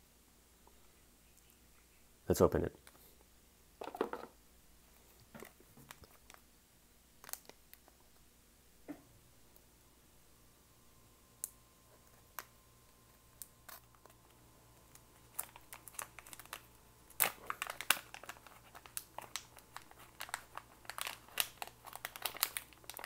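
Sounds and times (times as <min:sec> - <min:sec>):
plastic bag crinkling: 0:05.1 - 0:06.4, 0:07.2 - 0:08.0, 0:13.4 - 0:23.0.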